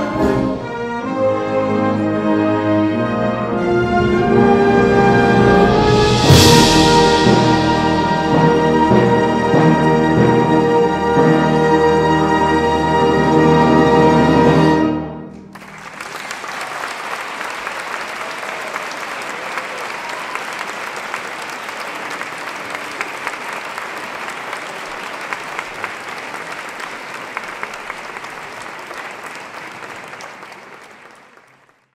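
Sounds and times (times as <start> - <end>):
orchestra closing chord: 0.0 - 15.6
audience applauding: 15.5 - 31.9.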